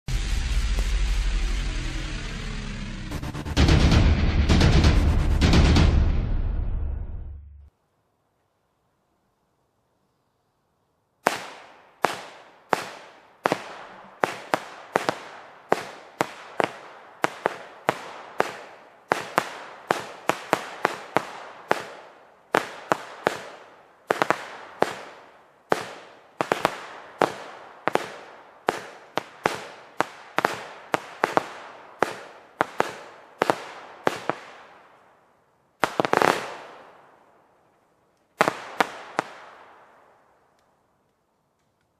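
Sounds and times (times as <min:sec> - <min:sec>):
firework battery bangs: 0:00.1 - 0:05.8.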